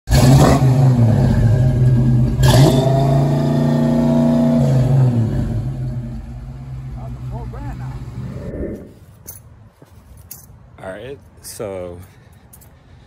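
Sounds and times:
car engine revving: 0.1 - 9.0.

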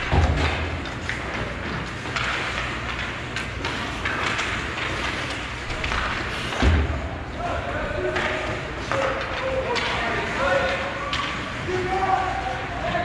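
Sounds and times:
hockey sticks and puck clicking: 0.0 - 6.7, 8.0 - 13.0
skates scraping on ice: 0.4 - 6.6.

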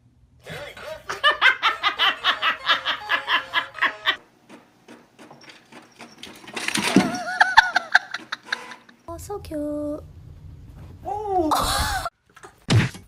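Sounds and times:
person laughing hard: 0.5 - 4.2, 7.0 - 8.6.

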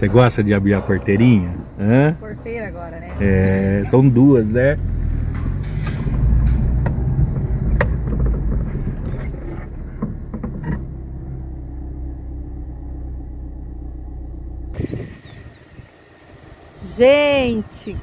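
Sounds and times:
suspension knocks: 0.0 - 14.9
car engine running: 0.0 - 18.0.

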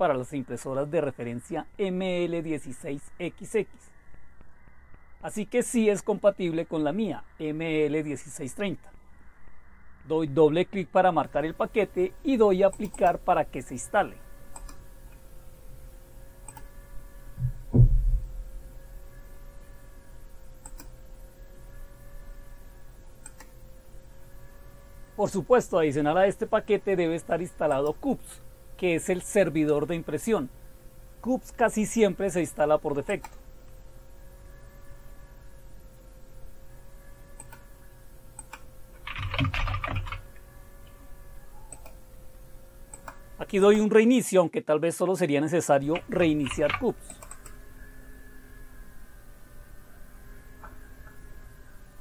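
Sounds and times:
electrical hum with whine: 0.0 - 52.0
computer mouse clicking: 12.6 - 13.2, 14.5 - 15.3, 16.4 - 16.8, 20.6 - 21.0, 23.2 - 23.6, 33.1 - 33.8, 37.3 - 37.7, 38.3 - 41.0, 41.6 - 42.0, 42.9 - 43.2, 45.9 - 47.6
low thumps: 17.4 - 18.6.

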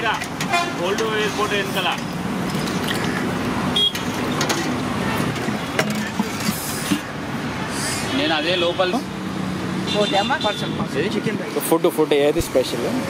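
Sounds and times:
street traffic: 0.0 - 13.0
vehicle horn toots: 0.5 - 0.8, 3.8 - 4.0, 9.9 - 10.8.

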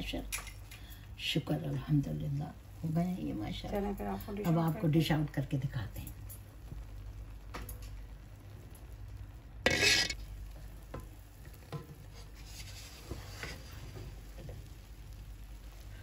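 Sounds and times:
spoon scooping rice in metal pot: 9.7 - 10.2.

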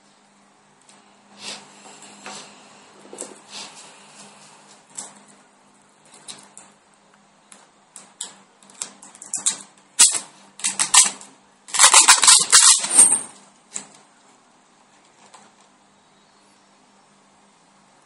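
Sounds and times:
plastic clicks and crackles: 6.1 - 12.7.

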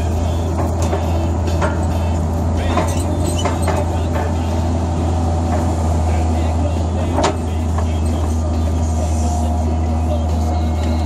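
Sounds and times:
diesel engine under hydraulic load: 0.0 - 11.0
knocks and rattles: 0.5 - 4.4.

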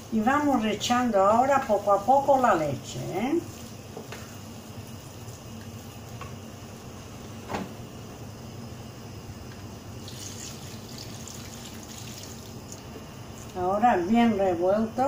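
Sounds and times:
milk pouring and splashing: 9.5 - 13.6.

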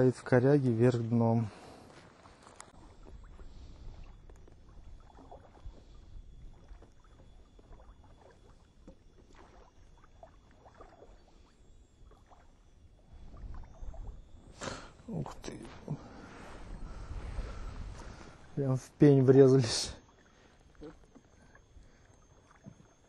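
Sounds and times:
faint high whine: 0.0 - 23.0
water lapping at hull: 0.0 - 23.0
cable rustling and clicking: 1.9 - 2.7
low rumble: 13.1 - 18.7.

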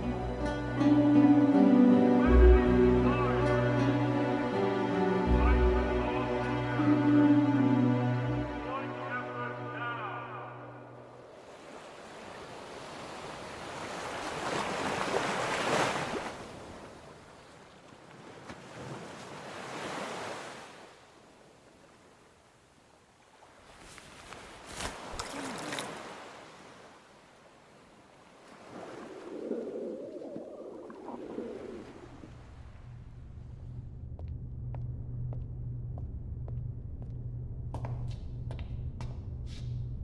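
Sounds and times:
waves washing against shore: 11.3 - 17.2, 28.0 - 32.9.

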